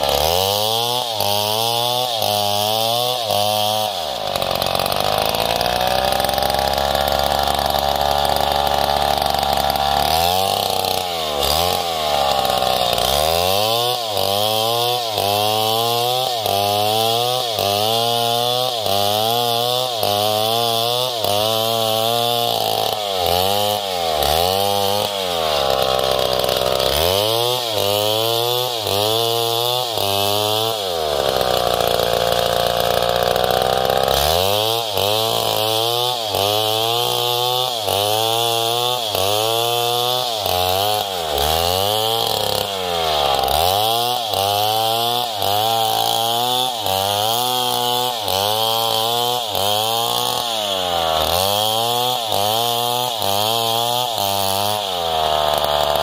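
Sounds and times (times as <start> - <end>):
chainsaw cutting log: 0.0 - 56.0.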